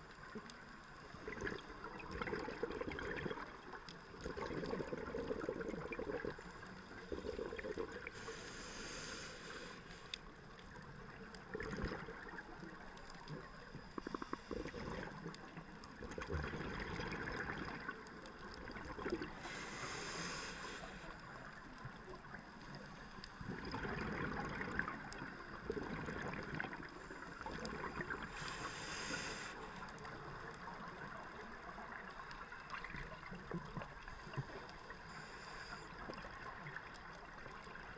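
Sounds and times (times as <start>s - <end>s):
scuba regulator bubbling underwater: 1.2s - 3.6s, 4.2s - 6.4s, 16.0s - 18.0s, 23.5s - 28.4s
regulator hiss: 8.0s - 10.2s, 19.3s - 21.5s, 28.2s - 29.9s.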